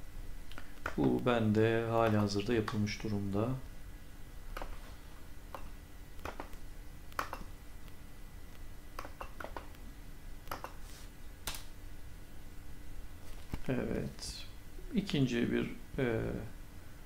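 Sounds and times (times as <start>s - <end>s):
faint steady hum: 0.0s - 17.0s
mouse and keyboard clicks: 5.5s - 7.5s, 9.0s - 9.8s, 10.4s - 10.8s.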